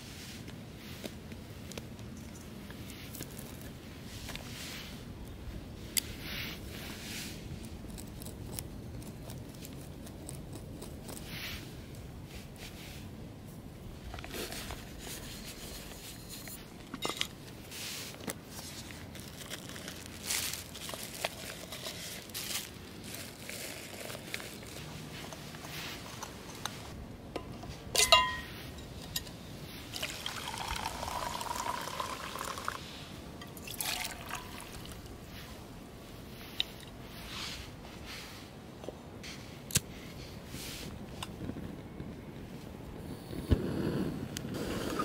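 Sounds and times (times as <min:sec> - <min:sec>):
cookware clicks and knocks: 0:28.0 - 0:28.5
liquid pouring into metal mug: 0:30.0 - 0:32.8, 0:33.6 - 0:35.0.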